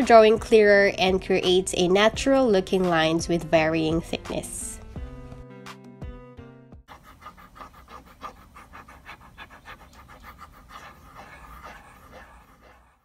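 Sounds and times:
stylus scratching on tablet: 0:06.9 - 0:13.0.

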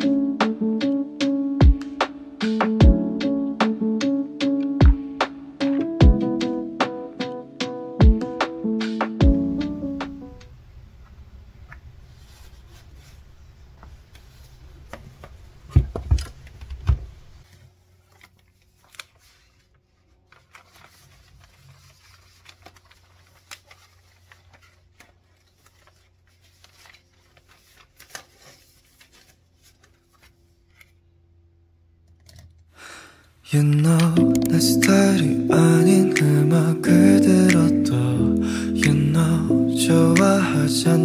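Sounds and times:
paper rustling: 0:12.0 - 0:16.8, 0:17.4 - 0:31.0.

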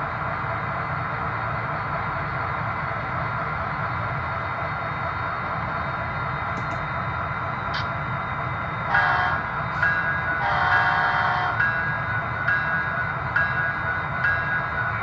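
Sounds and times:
model locomotive rumble: 0:08.8 - 0:15.0
locomotive horn blasts: 0:08.9 - 0:09.5, 0:10.4 - 0:11.7.

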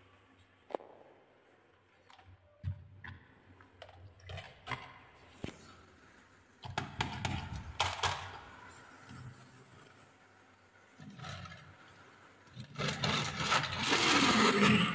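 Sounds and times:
plastic wheels rumbling: 0:12.5 - 0:14.9.

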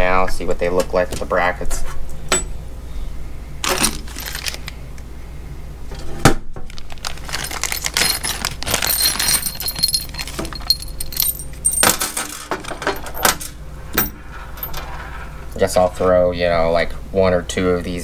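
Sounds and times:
metal hardware clinking: 0:03.6 - 0:04.7, 0:07.2 - 0:15.0
plastic bag crinkling: 0:03.6 - 0:04.8, 0:06.6 - 0:11.5.

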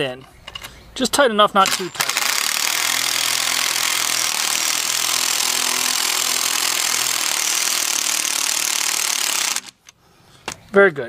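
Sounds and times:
impact driver driving screw: 0:01.7 - 0:10.0.

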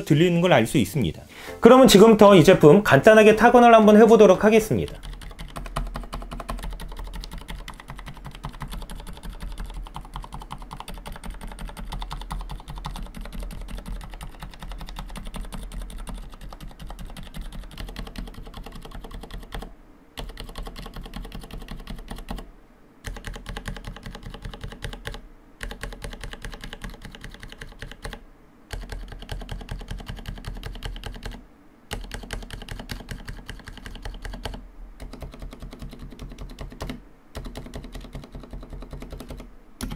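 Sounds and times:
fast mechanical keyboard typing: 0:03.5 - 0:39.9.

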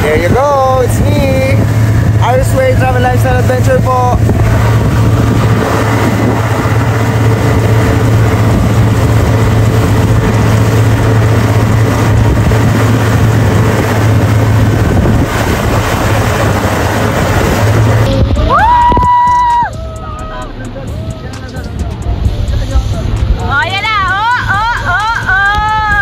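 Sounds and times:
rushing water: 0:00.0 - 0:19.7
motorboat engine drone: 0:00.0 - 0:26.0
wind buffeting microphone: 0:00.0 - 0:26.0.

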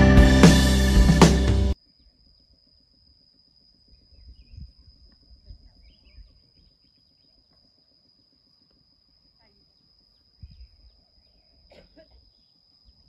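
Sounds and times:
faint chirps: 0:01.7 - 0:13.0
high insect drone: 0:01.7 - 0:13.0.

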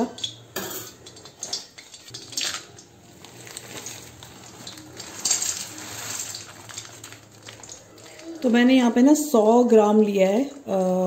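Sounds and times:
dried pieces rattling into pan: 0:01.0 - 0:08.8
plastic packet crinkling: 0:01.6 - 0:09.2.

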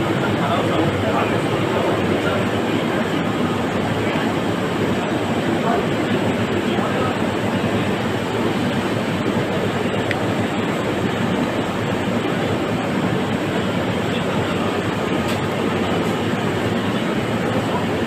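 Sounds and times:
constant background rumble: 0:00.0 - 0:18.0.

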